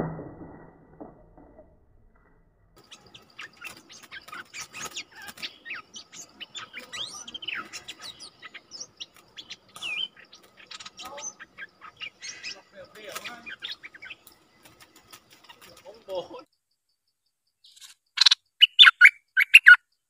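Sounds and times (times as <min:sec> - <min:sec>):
birds calling in whistled notes: 0:02.8 - 0:16.5, 0:17.6 - 0:20.0.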